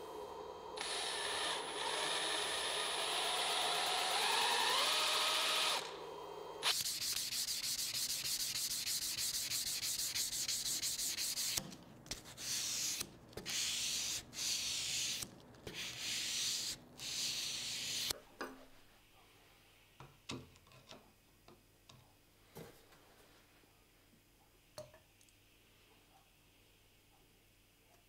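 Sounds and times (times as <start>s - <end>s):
cordless drill boring into wood: 0.8s - 6.0s
sandpaper rasping on wood: 6.7s - 15.2s.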